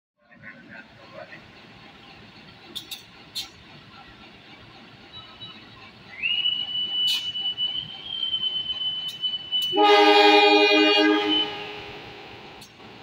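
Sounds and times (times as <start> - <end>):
steady high-pitched squeal: 5.0 - 9.9
locomotive air horn blast: 9.6 - 12.2.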